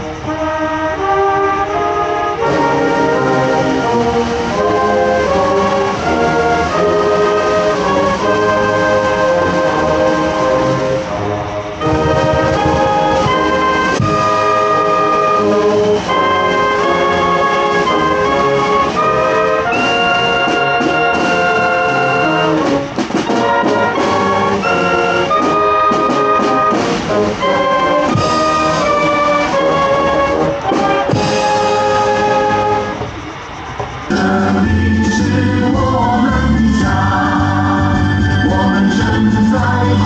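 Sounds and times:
brass band playing chords: 0.0 - 33.4, 34.0 - 40.0
snare drum strokes: 11.8 - 33.2.

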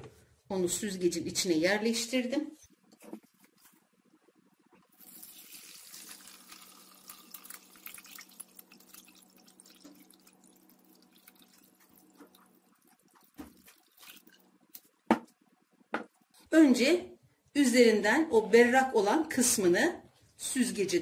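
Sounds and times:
liquid trickling and dripping: 4.9 - 15.0.

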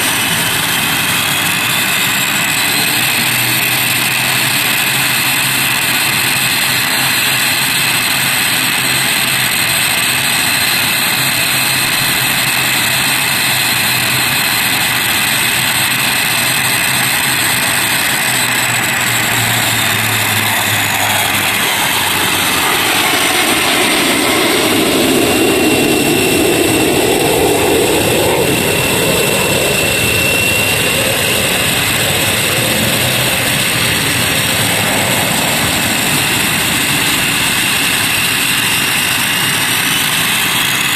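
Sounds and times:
turboprop engines whining: 0.0 - 40.9
low hum: 17.2 - 40.7
loud rushing noise: 17.5 - 40.9.

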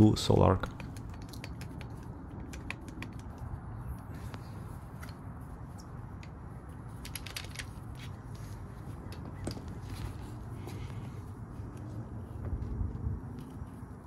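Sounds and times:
steady low hum: 0.0 - 14.0
small clicks of hand tools: 0.6 - 4.4.

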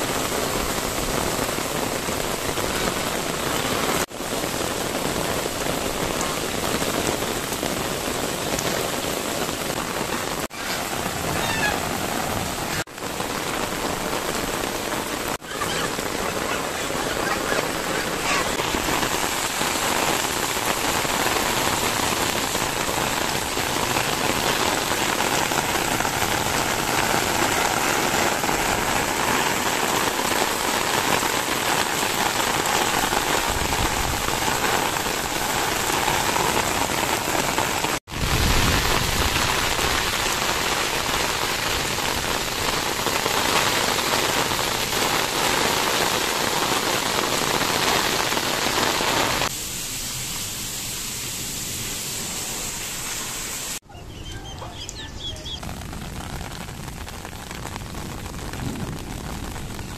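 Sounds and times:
heavy rain on wet paving: 0.0 - 59.9.

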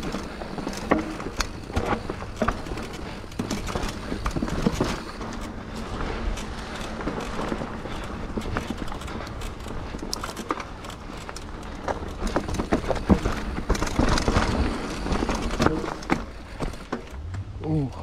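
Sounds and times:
bike rattles and knocks: 0.0 - 17.4
bike tyres on dirt: 0.0 - 18.0
steady low rumble: 17.0 - 18.0.

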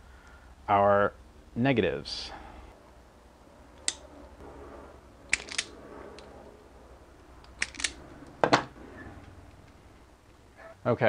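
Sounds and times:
tool set down on wooden bench: 8.4 - 8.7.

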